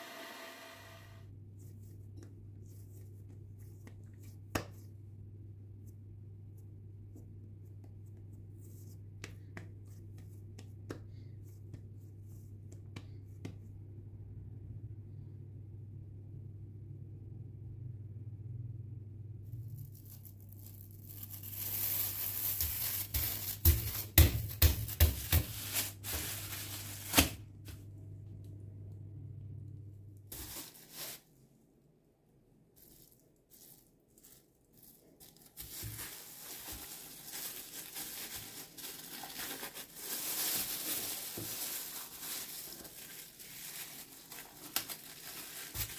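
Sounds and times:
cling film crinkling and tearing: 0:19.6 - 0:24.6, 0:33.6 - 0:45.9.

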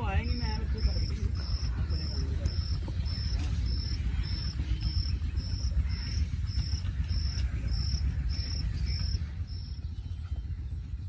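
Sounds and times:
steady low rumble: 0:00.0 - 0:11.0
insect chirping: 0:06.5 - 0:09.8.

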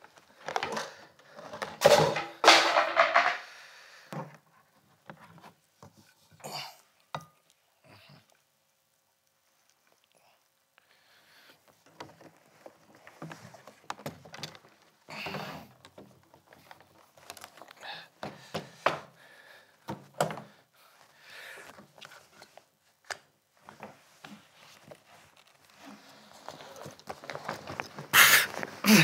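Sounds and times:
objects knocking in suitcase: 0:01.5 - 0:03.4
bags and fabric rustling: 0:11.6 - 0:18.8, 0:20.9 - 0:29.0.

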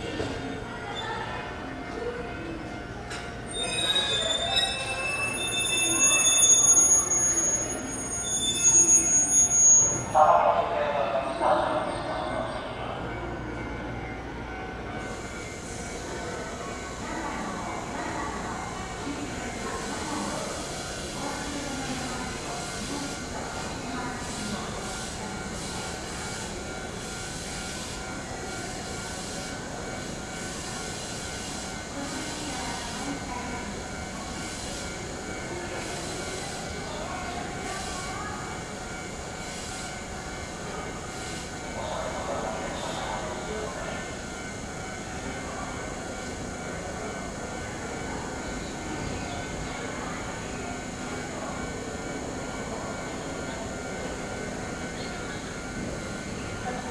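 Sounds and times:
train wheels squealing: 0:03.1 - 0:10.2, 0:18.8 - 0:56.6.

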